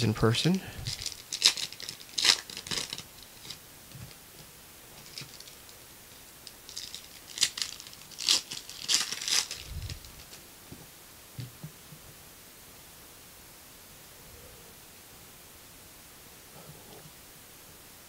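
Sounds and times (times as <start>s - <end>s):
foil wrapper crinkling and tearing: 0.8s - 3.6s, 5.0s - 5.7s, 6.4s - 10.4s.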